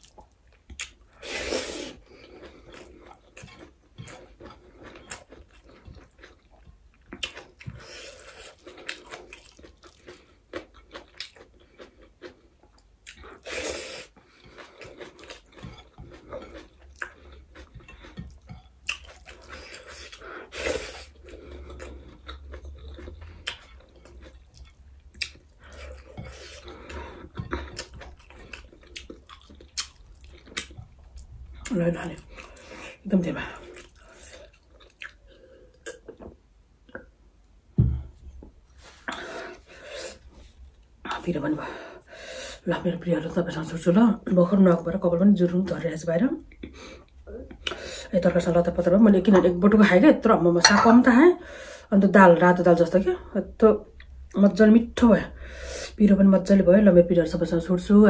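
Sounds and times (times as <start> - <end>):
chewing and wet mouth smacks: 0.0 - 1.1, 2.2 - 13.5, 14.1 - 20.2, 21.1 - 32.8, 33.6 - 37.1.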